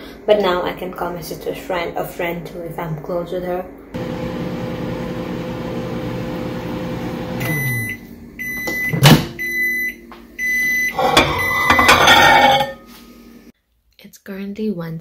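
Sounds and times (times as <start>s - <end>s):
microwave oven humming: 4.0s - 11.5s
microwave beeps: 4.0s - 12.3s.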